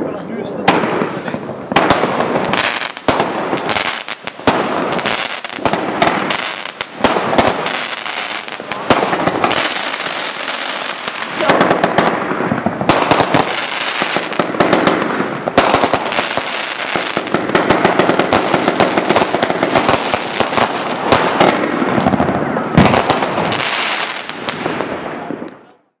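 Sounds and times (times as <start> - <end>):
fireworks bangs and pops: 0.5 - 26.0.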